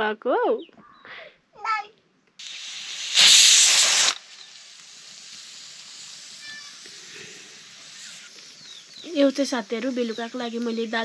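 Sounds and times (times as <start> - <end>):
cooking hiss on fire: 2.4 - 11.0.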